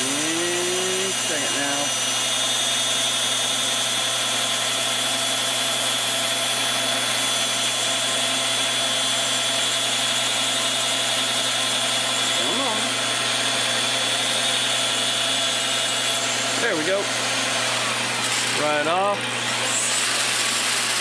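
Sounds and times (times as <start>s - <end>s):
cutoff wheel grinding steel: 0.0s - 2.0s.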